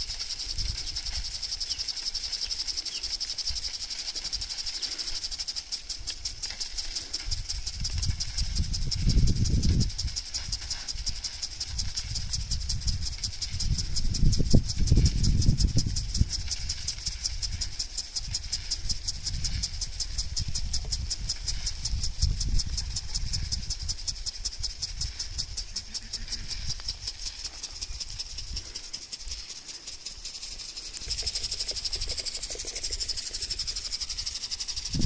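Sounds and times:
sprinklers spraying water: 0.0s - 35.0s
wind rumbling on microphone: 6.0s - 29.4s, 30.5s - 35.0s.

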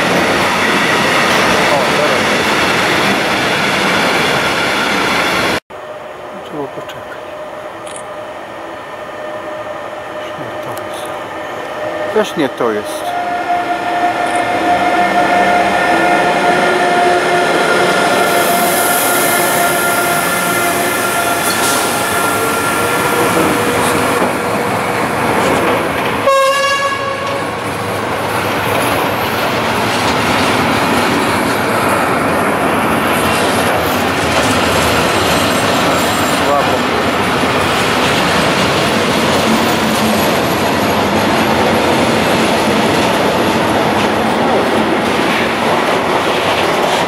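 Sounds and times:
electric locomotive whine: 0.0s - 47.0s
train horn blast: 12.9s - 24.3s, 26.2s - 27.6s.

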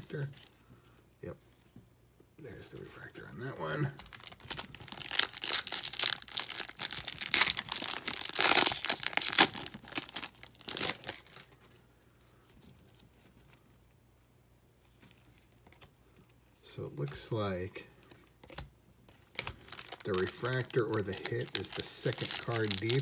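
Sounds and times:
foil wrapper tearing and crinkling: 4.0s - 11.6s, 19.3s - 23.0s.

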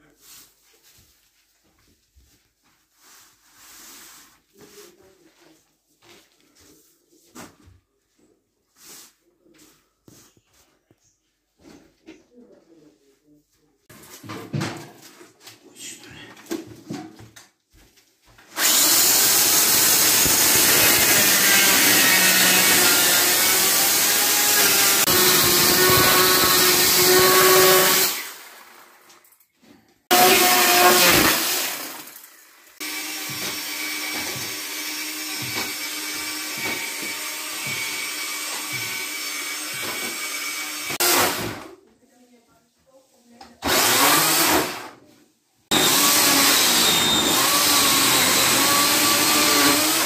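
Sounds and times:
electric chainsaw cutting wood: 18.6s - 29.1s, 30.1s - 41.6s, 43.6s - 45.0s, 45.7s - 50.0s.

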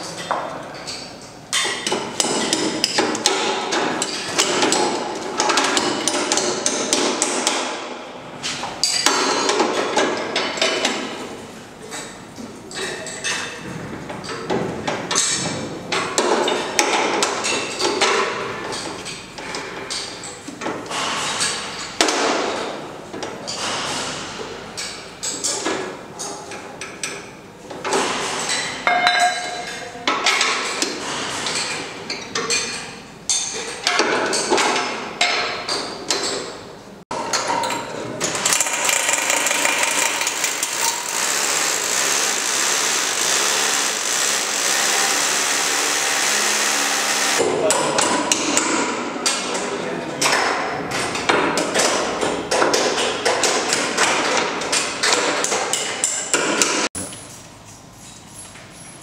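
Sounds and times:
power drill running: 38.5s - 47.4s.

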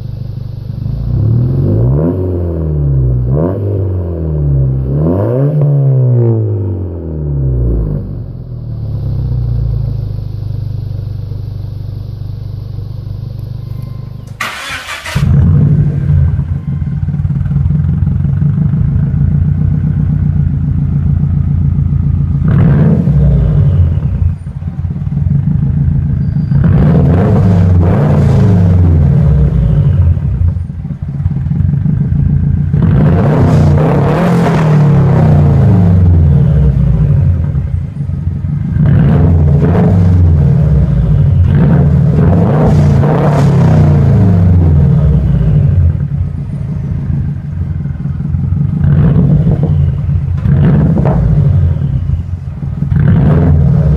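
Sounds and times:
car engine idling: 0.0s - 3.3s, 6.9s - 53.9s
engine revving roughly: 1.0s - 8.2s, 14.4s - 16.6s, 22.3s - 24.3s, 26.5s - 30.6s, 32.7s - 37.5s, 38.7s - 46.1s, 48.7s - 52.1s, 52.8s - 53.9s.

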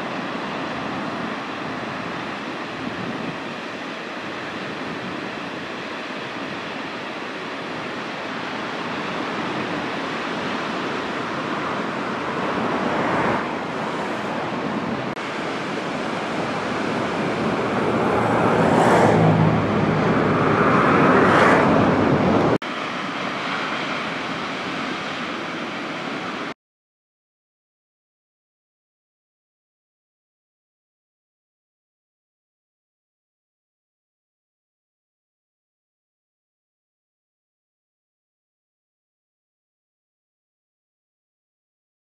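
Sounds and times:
ocean waves breaking: 0.0s - 26.6s.

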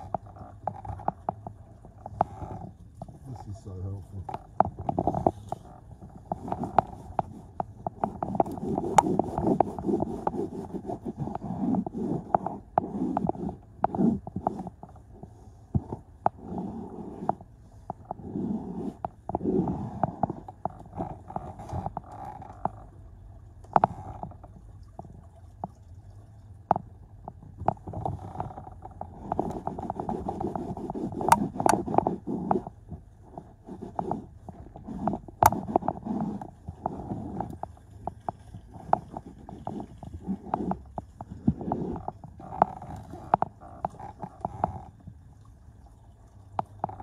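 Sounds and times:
cloth scrubbing carpet: 8.1s - 14.7s.

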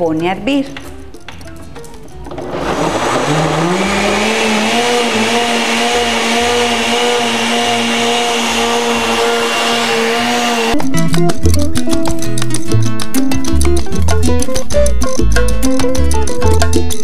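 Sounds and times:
blender motor running: 2.4s - 10.8s.

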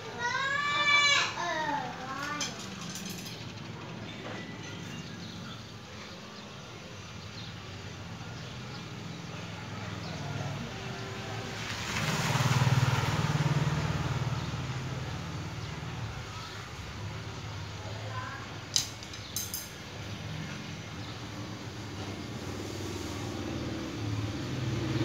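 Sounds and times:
vehicle engine passing: 7.1s - 18.7s, 20.0s - 25.0s.

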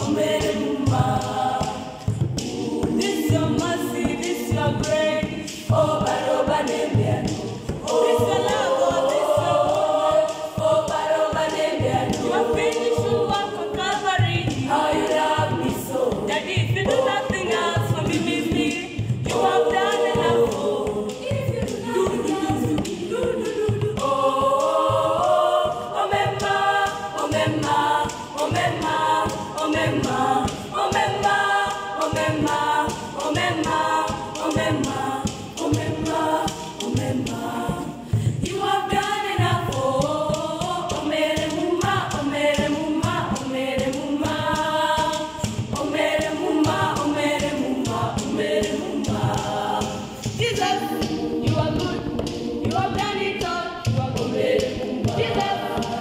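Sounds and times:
girls' choir singing in harmony: 0.0s - 56.0s
light rhythmic tapping: 0.0s - 56.0s.

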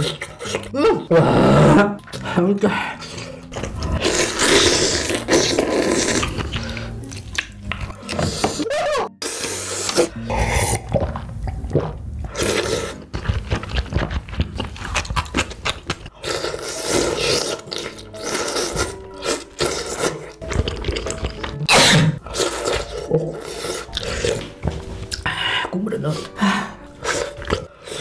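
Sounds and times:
person chewing: 0.0s - 1.1s, 2.9s - 25.3s, 26.2s - 28.0s
person slurping noodles: 3.0s - 7.2s, 8.1s - 24.5s, 27.0s - 28.0s.

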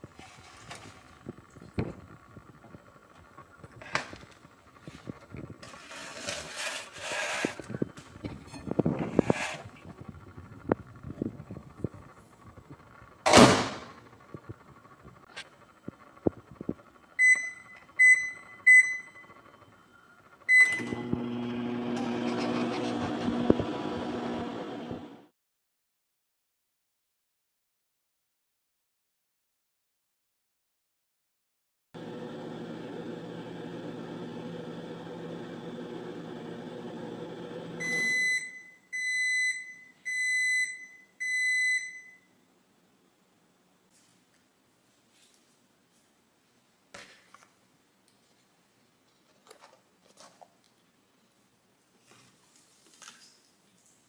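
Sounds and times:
microwave running with fan hum: 7.6s - 25.3s, 32.0s - 42.4s
microwave keypad beeps: 17.2s - 19.4s, 20.5s - 21.0s, 37.8s - 42.3s.

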